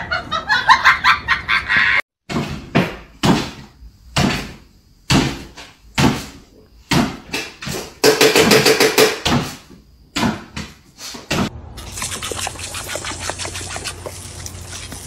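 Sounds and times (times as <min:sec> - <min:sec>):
loud knocks and clatter: 0:06.9 - 0:09.5
hose nozzle spraying water: 0:11.8 - 0:15.0.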